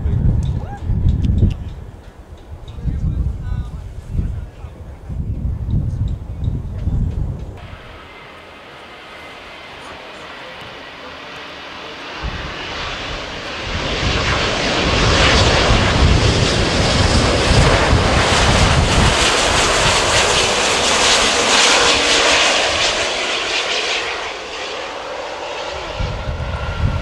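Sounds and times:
jet engines rumbling and hissing: 0.0s - 27.0s.

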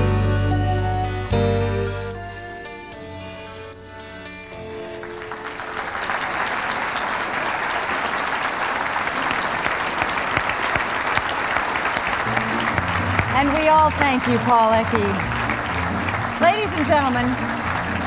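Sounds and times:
closing music: 0.0s - 7.2s, 11.8s - 18.0s
audience applause: 4.6s - 18.0s.

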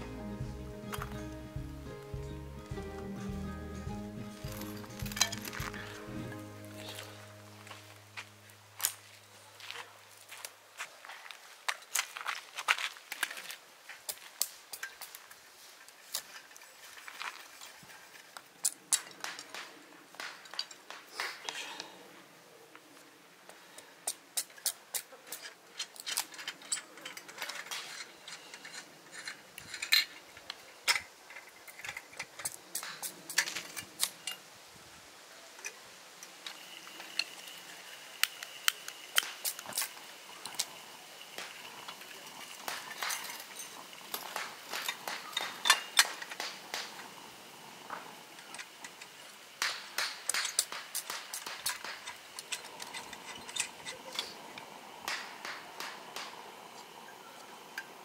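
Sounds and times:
metal lantern parts clinking: 4.3s - 7.8s, 24.4s - 34.4s, 41.4s - 46.5s, 48.4s - 54.7s.

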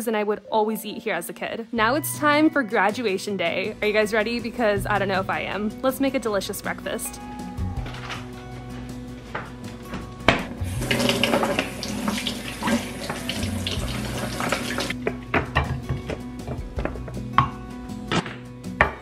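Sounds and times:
faucet water splashing into sink: 10.7s - 15.0s.

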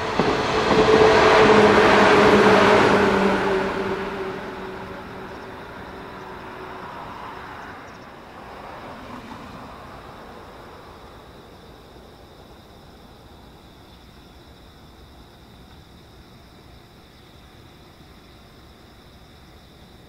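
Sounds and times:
electric train rumble and motor hum: 0.0s - 7.2s.

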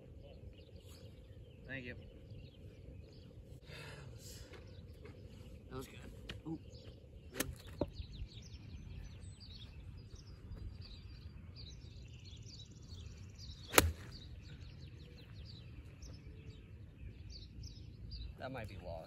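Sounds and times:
birds chirping: 0.0s - 19.0s
golf club striking ball: 13.7s - 14.2s.

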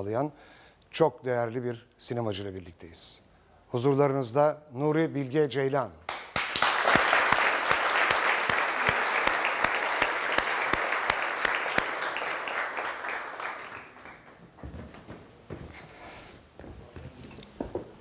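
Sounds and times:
audience applauding: 6.1s - 14.5s.

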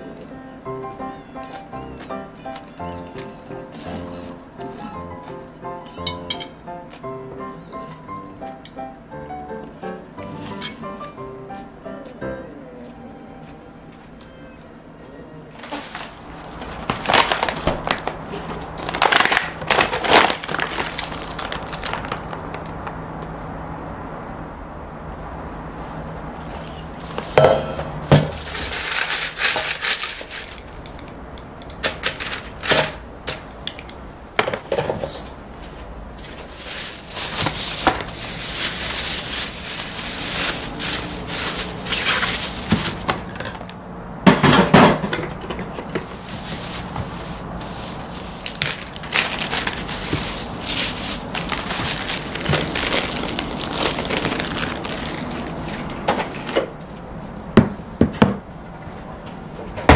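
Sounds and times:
plastic packaging crinkling: 15.6s - 23.0s, 28.2s - 30.8s, 31.9s - 32.8s, 36.2s - 43.4s, 46.2s - 56.1s.

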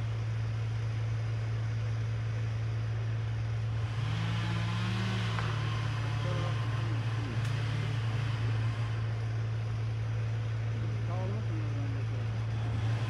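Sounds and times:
engine humming steadily: 0.0s - 13.0s
second engine note rising and falling: 3.6s - 13.0s.

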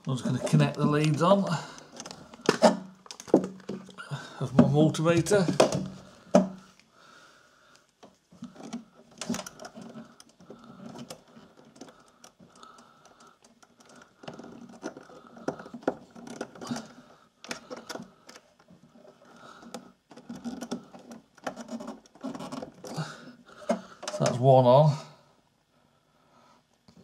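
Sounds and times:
hands fumbling with clicks and taps: 0.3s - 6.6s.

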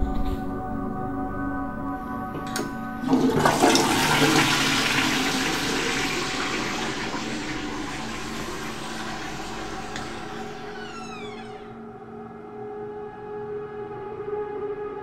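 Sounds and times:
toilet flush water rushing: 2.6s - 11.6s.

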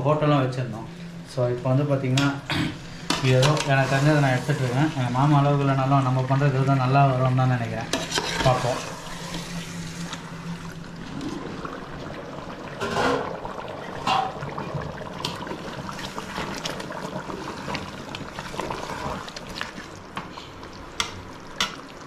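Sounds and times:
gravy bubbling in a pot: 2.2s - 22.0s.

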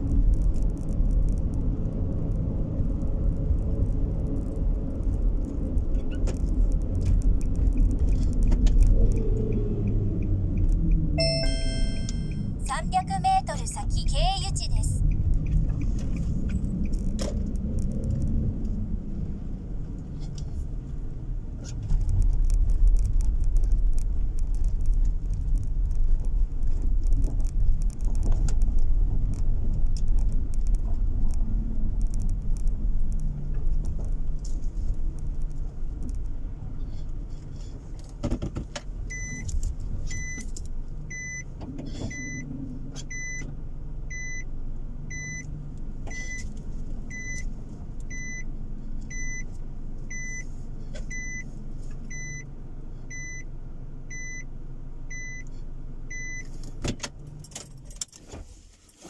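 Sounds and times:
engine and road rumble: 0.0s - 59.0s
car electronic beep: 11.2s - 14.6s, 39.1s - 39.5s, 40.1s - 40.4s, 41.1s - 42.5s, 43.1s - 43.5s, 44.1s - 44.5s, 45.1s - 45.5s, 46.1s - 46.5s, 47.1s - 47.5s, 48.1s - 48.5s, 49.1s - 49.5s, 50.1s - 50.5s, 51.1s - 51.5s, 52.1s - 52.5s, 53.1s - 53.5s, 54.1s - 54.5s, 55.1s - 55.5s, 56.1s - 56.5s.

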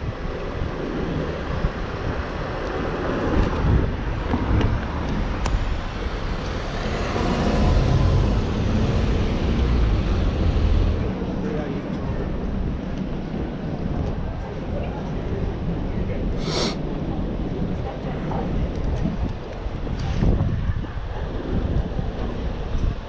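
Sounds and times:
road traffic passing: 0.5s - 11.4s.

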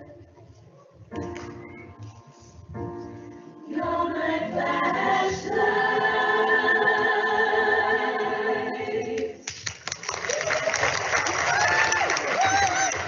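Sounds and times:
choir singing: 3.6s - 9.4s.

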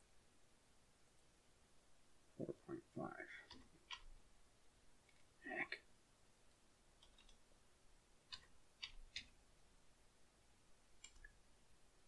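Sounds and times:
keyboard and mouse clicks: 3.5s - 4.1s, 7.0s - 7.4s, 8.3s - 9.4s, 11.0s - 11.4s.

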